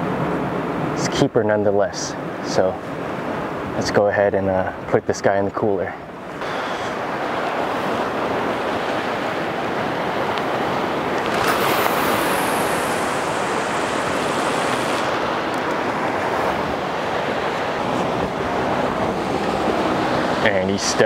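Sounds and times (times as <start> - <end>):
wave breaking: 6.4 - 20.6
ocean surf washing against rocks: 6.4 - 21.0.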